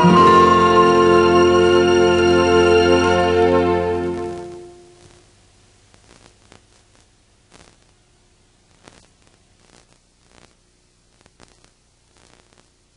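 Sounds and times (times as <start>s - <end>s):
videotape hiss and hum: 0.0s - 12.9s
small clicks and crackles: 5.0s - 8.0s, 8.7s - 12.9s.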